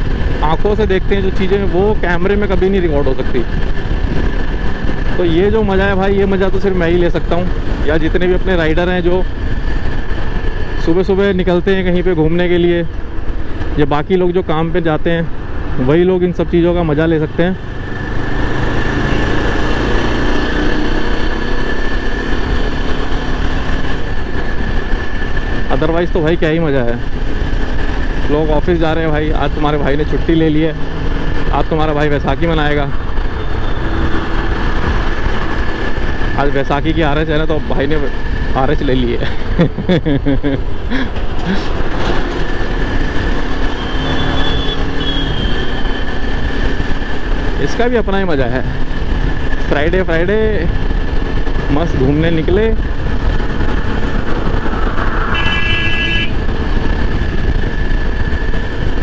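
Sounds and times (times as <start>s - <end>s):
wind rush over microphone: 0.0s - 14.1s, 17.6s - 38.6s, 48.6s - 59.0s
motorcycle engine running: 0.0s - 59.0s
wind on microphone: 52.6s - 59.0s.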